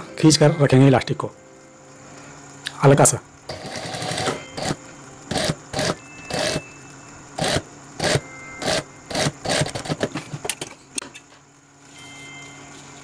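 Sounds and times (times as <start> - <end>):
sewing machine stitching: 3.5 - 6.6, 7.4 - 10.1.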